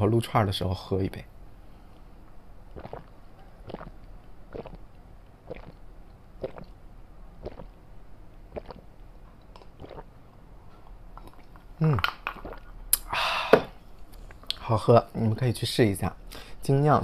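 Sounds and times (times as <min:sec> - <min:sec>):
person gulping a drink: 0:02.7 - 0:06.8, 0:07.4 - 0:07.8, 0:08.5 - 0:10.2, 0:11.2 - 0:13.1.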